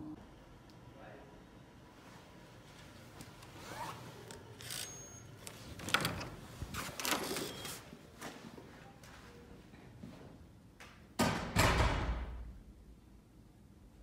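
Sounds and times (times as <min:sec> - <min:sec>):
wooden door opening: 0:05.7 - 0:07.8.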